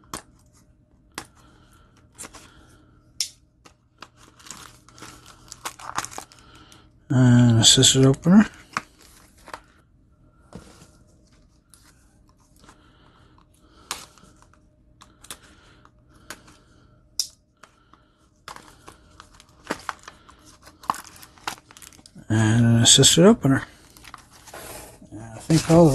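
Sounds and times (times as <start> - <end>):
cardboard box crinkling: 4.2 - 6.4, 18.5 - 22.1, 25.4 - 25.9.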